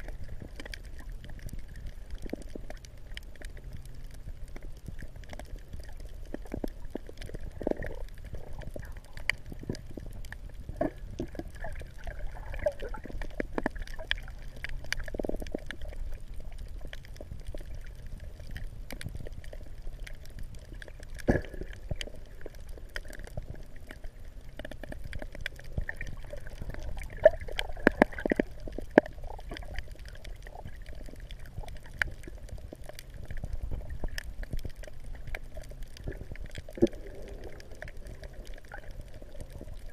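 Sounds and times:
water sloshing and gurgling: 0:00.0 - 0:39.9
small clicks and knocks: 0:12.6 - 0:16.0, 0:16.6 - 0:39.9.

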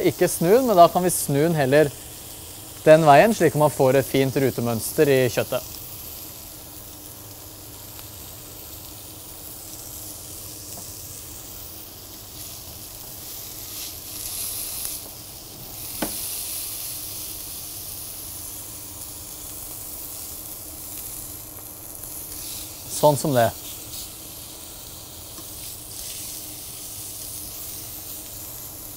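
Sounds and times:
meat sizzling in a grill pan: 0:00.0 - 0:28.9.

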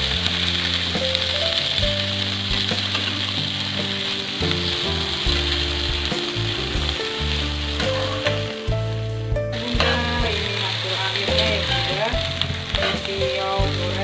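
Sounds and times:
background music: 0:00.0 - 0:14.0
noodles sizzling in a wok: 0:00.0 - 0:14.0
spatula tossing food: 0:09.6 - 0:14.0.

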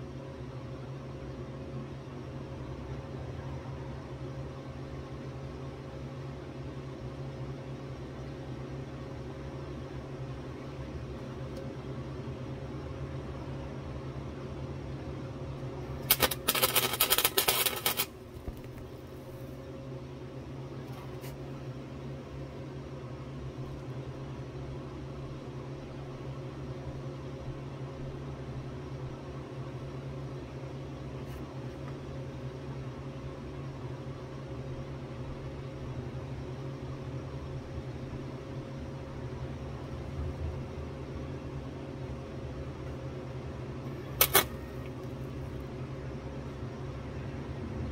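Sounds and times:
low machine hum: 0:00.0 - 0:47.9
welder arc crackling: 0:15.9 - 0:18.9, 0:44.2 - 0:44.6.

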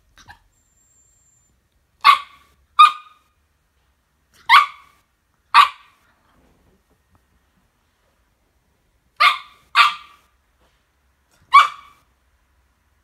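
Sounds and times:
dog barking sharply: 0:02.0 - 0:03.2, 0:04.4 - 0:06.0, 0:09.2 - 0:10.3, 0:11.5 - 0:12.0.

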